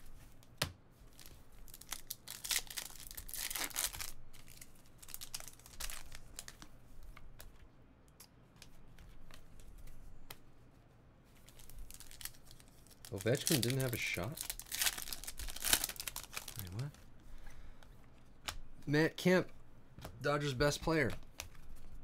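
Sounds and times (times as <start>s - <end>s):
foil wrapper tearing and crinkling: 1.1s - 6.6s, 11.5s - 16.9s.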